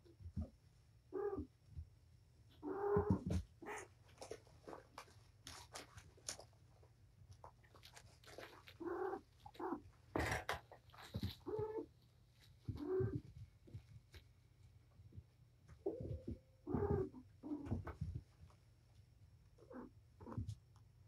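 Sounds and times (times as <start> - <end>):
paws scratching and clicking: 2.9 - 14.6.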